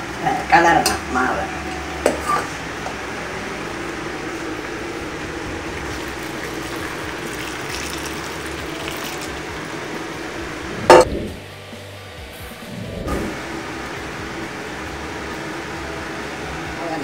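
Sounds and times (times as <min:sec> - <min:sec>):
syrup bubbling in a pan: 0:04.6 - 0:10.7.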